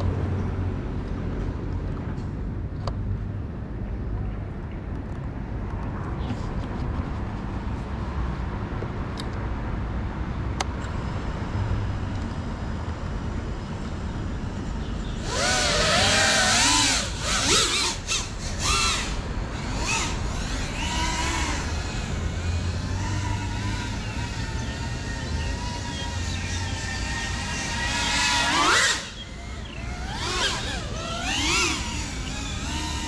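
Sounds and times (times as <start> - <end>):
outdoor background noise: 0.0 - 33.0
drone motors whining: 11.0 - 33.0.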